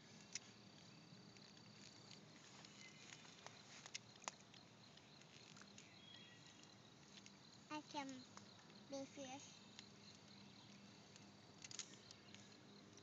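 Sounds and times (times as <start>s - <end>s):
high insect-like tone: 0.0s - 13.0s.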